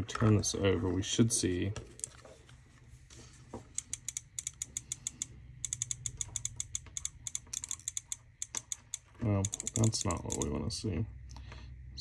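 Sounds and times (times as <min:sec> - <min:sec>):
light clicking of circuit board: 0:03.8 - 0:10.5.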